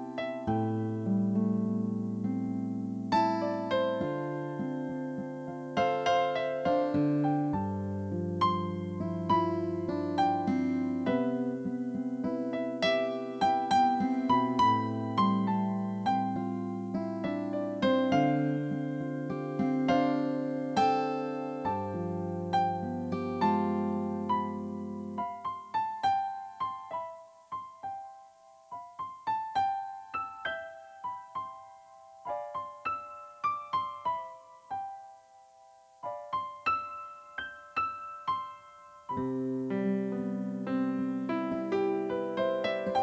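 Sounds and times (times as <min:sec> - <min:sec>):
gentle piano melody: 0:00.0 - 0:43.0
low piano chords: 0:00.0 - 0:43.0.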